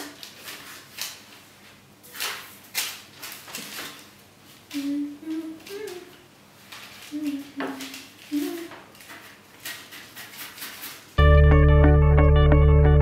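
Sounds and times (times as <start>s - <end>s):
person humming: 4.7s - 6.2s, 7.1s - 8.8s
dough being pressed and scraped: 7.4s - 11.2s.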